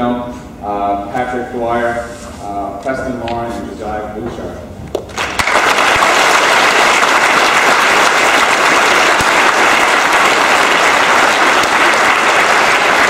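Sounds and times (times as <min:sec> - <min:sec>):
large audience applauding: 0:05.1 - 0:13.0.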